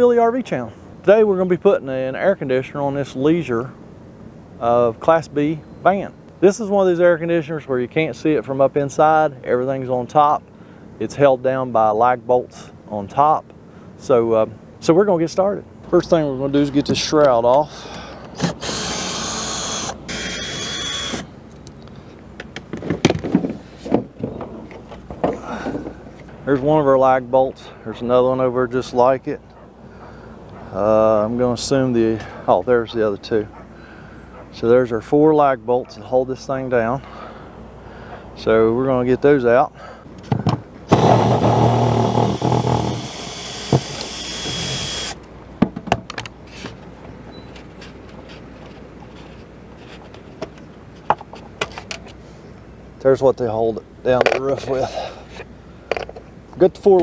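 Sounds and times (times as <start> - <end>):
cordless drill whirring: 18.4 - 21.3, 40.9 - 45.2.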